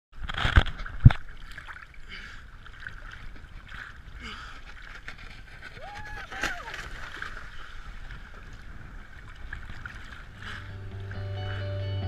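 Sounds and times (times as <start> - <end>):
sea water sloshing and splashing: 0.2 - 10.7.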